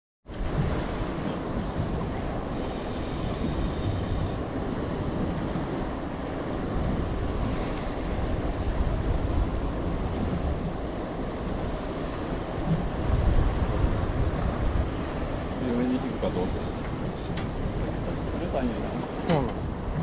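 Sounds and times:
waves washing around boat: 0.2s - 20.0s
wind buffeting microphone: 0.2s - 20.0s.

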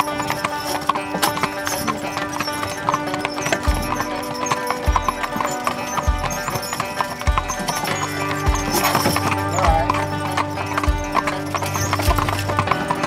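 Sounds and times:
hooves clip-clopping on pavement: 0.0s - 13.0s
music with deep beat: 3.2s - 13.0s.

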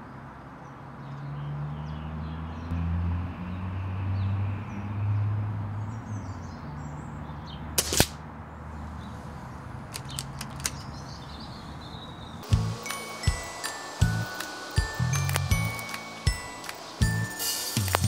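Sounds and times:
air rifle shot crack: 7.8s - 8.2s
light clicks: 9.9s - 11.0s.

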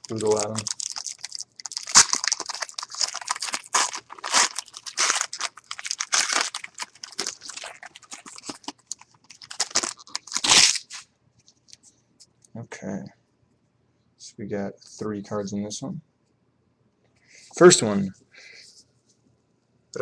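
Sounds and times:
card pack wrapper tearing and crinkling: 0.0s - 11.1s.

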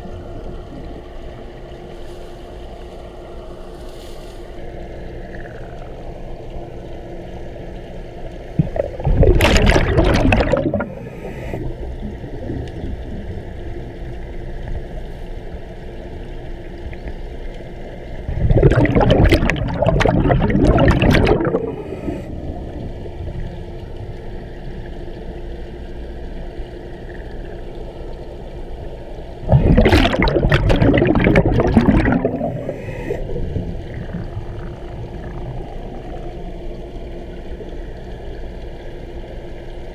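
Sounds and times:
steady low hum: 0.0s - 39.9s
underwater air bubbling: 8.4s - 15.5s, 18.0s - 25.5s, 26.2s - 39.4s.

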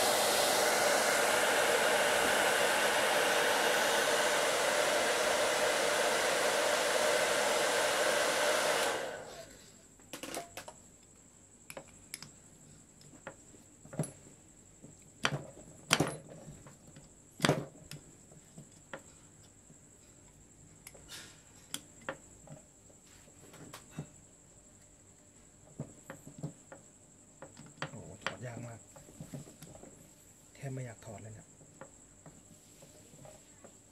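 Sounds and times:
heat gun blowing: 0.0s - 9.6s.

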